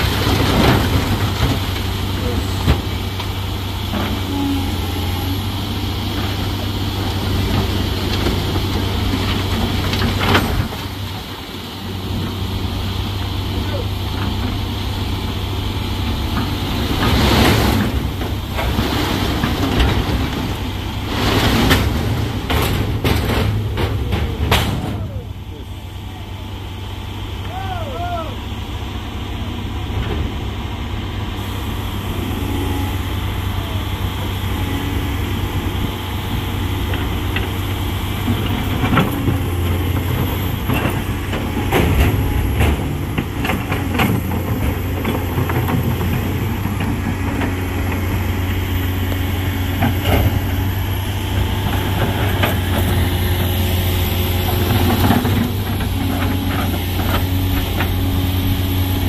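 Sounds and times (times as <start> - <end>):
diesel truck engine running: 0.0 - 59.0
knocks and clatter: 21.2 - 25.0.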